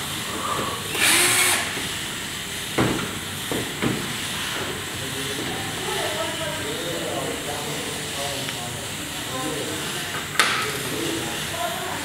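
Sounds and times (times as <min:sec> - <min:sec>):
cordless drill spinning: 0:00.9 - 0:01.8.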